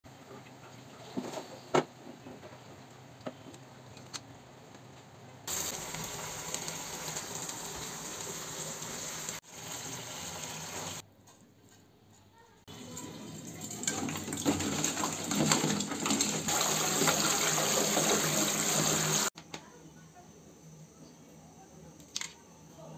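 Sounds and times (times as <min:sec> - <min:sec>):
fish sizzling in a pan: 0:05.5 - 0:11.0.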